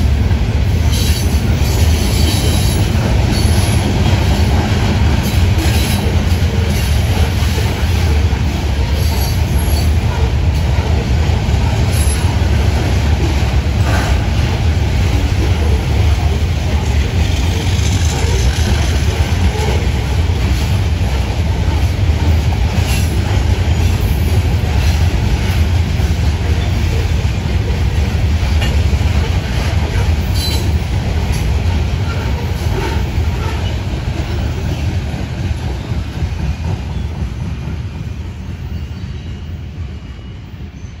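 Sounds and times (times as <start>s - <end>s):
train wheels rumbling on rail: 0.0s - 41.0s
sharp rail clicks: 11.8s - 23.5s.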